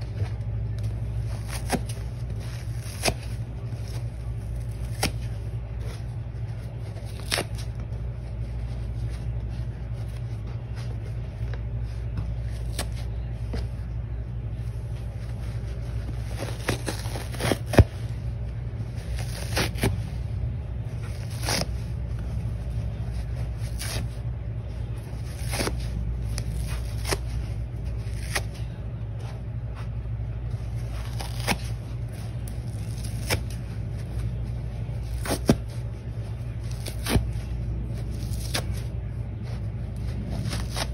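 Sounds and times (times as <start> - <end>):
steady low hum: 0.0 - 40.9
sponge tearing with snaps: 4.6 - 5.3, 7.0 - 7.7, 28.1 - 28.6, 31.0 - 31.7, 32.7 - 33.6, 38.2 - 38.8.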